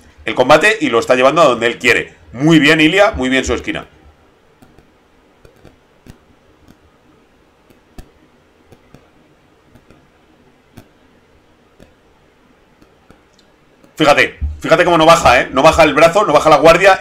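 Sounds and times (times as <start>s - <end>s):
low steady hiss: 0.0s - 17.0s
small irregular clicks: 4.6s - 6.9s, 7.6s - 11.0s.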